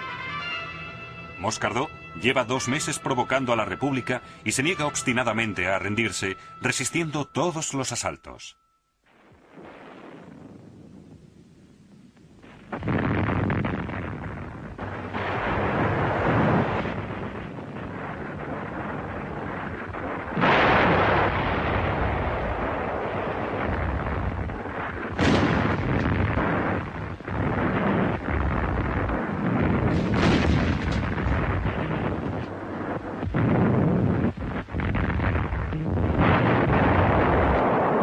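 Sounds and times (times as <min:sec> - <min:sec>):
rumble of gunfire and explosions: 0:09.0 - 0:38.0
heavy shell blasts: 0:12.7 - 0:35.6.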